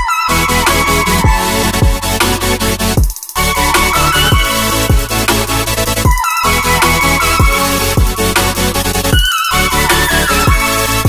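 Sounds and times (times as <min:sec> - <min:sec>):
electronic music with beat: 0:00.0 - 0:11.0
deep bass hits sliding down: 0:00.6 - 0:06.1.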